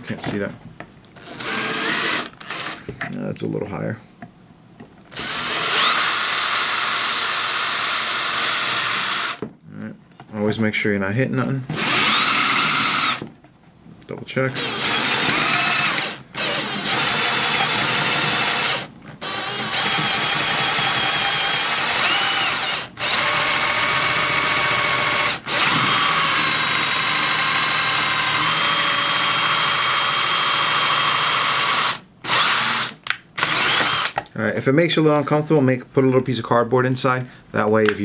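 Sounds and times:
drill cutting through plastic: 1.2 - 2.8, 5.1 - 9.4, 11.7 - 13.3, 14.5 - 34.2.

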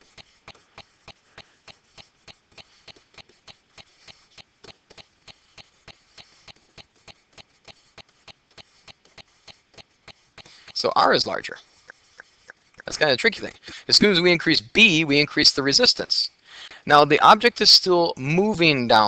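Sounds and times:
stylus clicking on tablet: 0.0 - 13.7.

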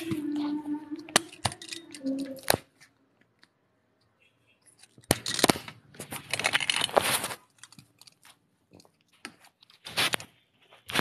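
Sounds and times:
fingers rustling on phone: 4.6 - 11.0.

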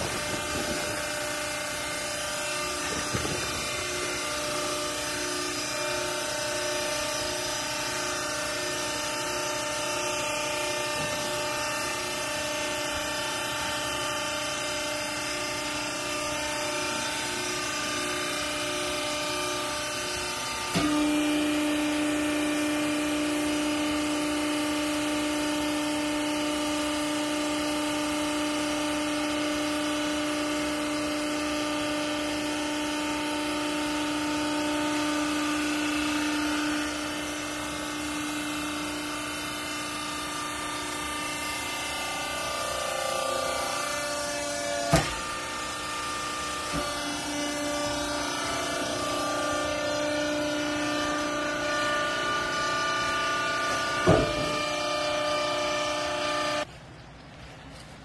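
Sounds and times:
hydraulic pump hum and whine: 0.0 - 58.0.

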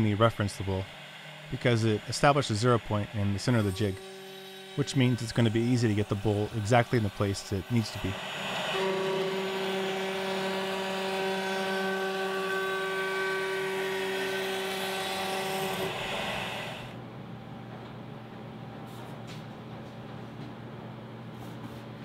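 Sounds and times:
cnc router spindle whine: 0.0 - 17.0.

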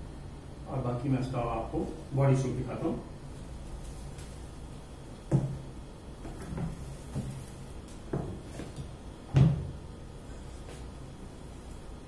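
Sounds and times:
handling knocks and thumps: 5.3 - 9.8.

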